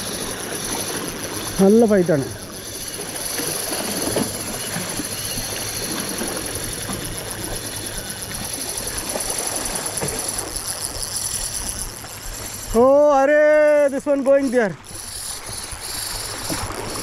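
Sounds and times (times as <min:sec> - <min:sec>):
fishing reel whirring: 0:00.0 - 0:17.0
sea wash: 0:00.0 - 0:17.0.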